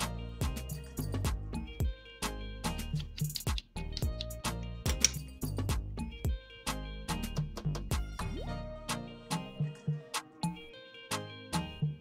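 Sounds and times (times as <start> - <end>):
background music with drum hits: 0.4 - 9.6.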